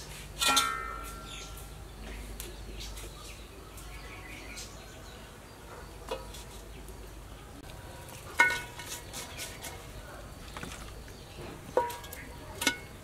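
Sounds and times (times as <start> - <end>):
metal pots clanking: 0.4 - 1.4, 8.0 - 9.7, 10.5 - 13.0.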